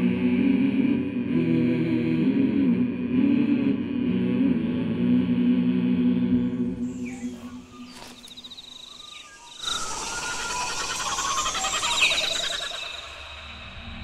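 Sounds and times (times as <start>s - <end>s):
birds chirping: 6.7s - 13.8s
insects trilling: 6.8s - 14.0s.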